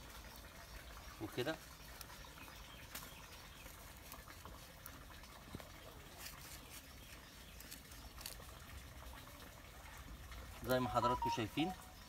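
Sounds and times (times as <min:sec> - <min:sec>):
stick scratching in dry soil: 0:06.1 - 0:08.6.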